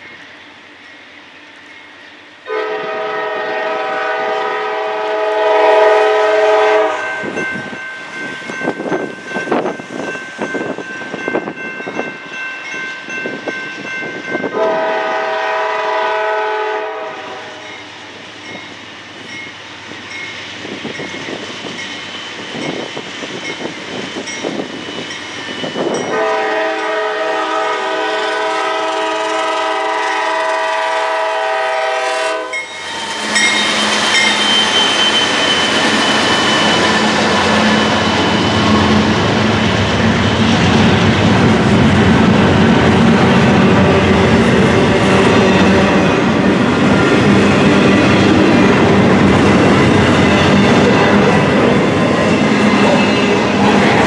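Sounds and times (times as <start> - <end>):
locomotive air horn blasts: 2.5 - 7.3, 14.5 - 17.7, 26.1 - 33.7
crossing signal bell ringing: 6.8 - 14.6, 32.5 - 39.2.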